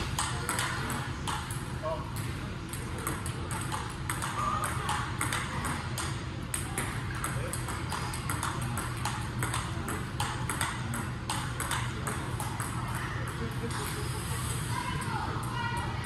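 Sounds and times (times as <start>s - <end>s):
steady low hum: 0.0s - 16.0s
table tennis ball clicks: 2.2s - 13.0s.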